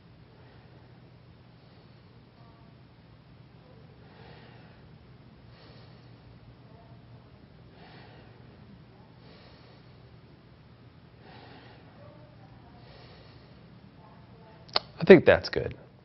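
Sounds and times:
low room hum: 0:00.0 - 0:16.0
man breathing slowly: 0:00.3 - 0:02.4, 0:04.0 - 0:06.5, 0:07.6 - 0:10.3, 0:11.1 - 0:12.1, 0:12.8 - 0:13.8.

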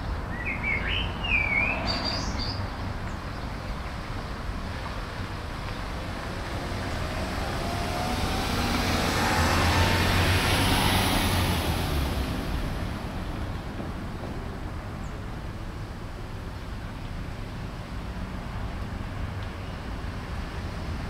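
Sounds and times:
vehicle passing by: 0:04.9 - 0:14.2.

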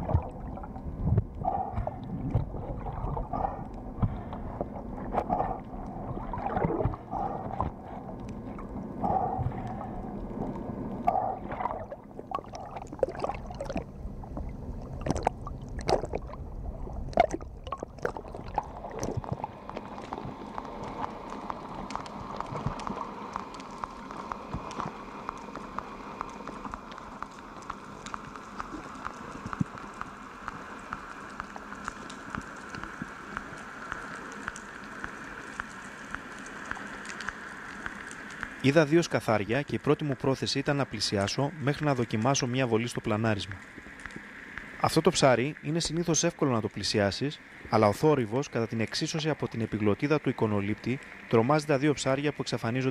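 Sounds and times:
faint steady hum: 0:00.0 - 0:52.9
sharp clicks and crackles: 0:01.0 - 0:16.4, 0:17.1 - 0:38.6, 0:43.6 - 0:44.8.

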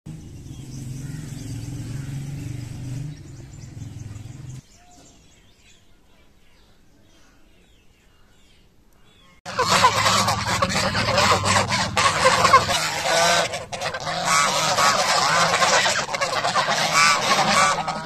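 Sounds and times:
low engine-like hum: 0:00.1 - 0:04.6, 0:09.5 - 0:18.0
small birds chirping: 0:00.1 - 0:18.0.

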